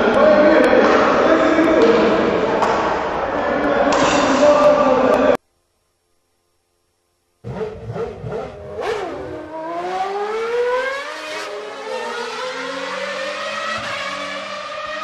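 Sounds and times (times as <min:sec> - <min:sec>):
racing car engine accelerating: 0:07.4 - 0:15.0.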